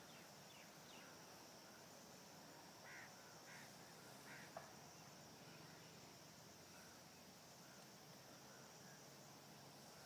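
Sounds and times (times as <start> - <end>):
distant bird calls: 2.5 - 10.0.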